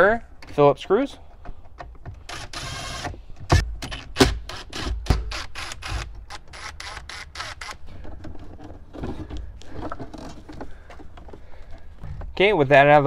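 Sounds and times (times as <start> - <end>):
cordless drill running in bursts: 2.3 - 3.1.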